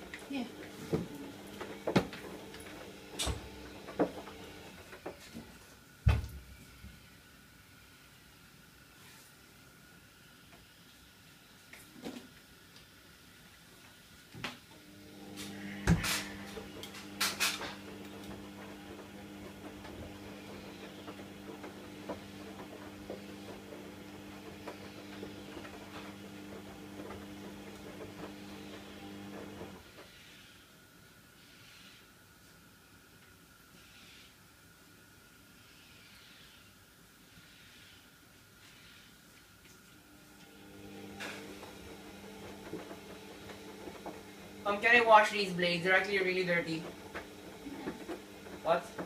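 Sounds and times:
exhaust fan humming: 0:14.7 - 0:29.9, 0:39.9 - 0:49.0.

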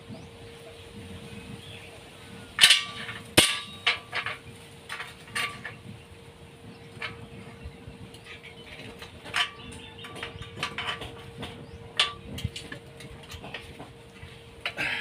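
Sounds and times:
sharp metallic clanks: 0:02.6 - 0:05.8, 0:08.1 - 0:13.9.

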